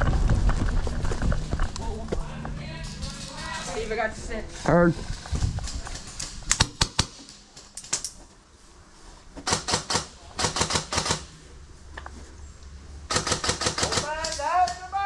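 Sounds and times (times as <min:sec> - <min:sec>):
airsoft guns firing: 0:06.0 - 0:07.2, 0:09.4 - 0:11.3, 0:13.1 - 0:14.8.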